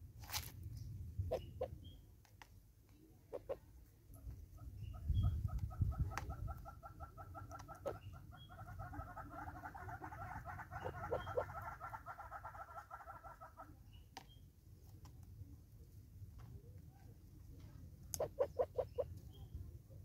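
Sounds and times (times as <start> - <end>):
hornbill clucking call: 3.3 - 3.6, 4.5 - 13.8, 18.1 - 19.2.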